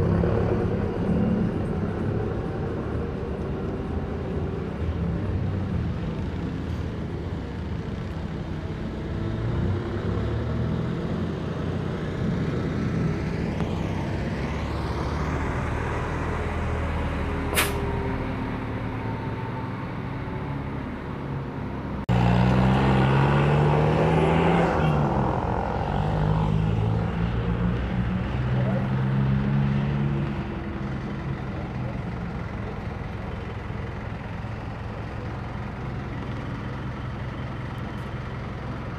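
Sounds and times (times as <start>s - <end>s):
bus engine idling: 0.0s - 9.2s, 30.2s - 38.9s
diesel bus engines running: 0.0s - 38.9s
air brake hiss: 17.5s - 17.9s.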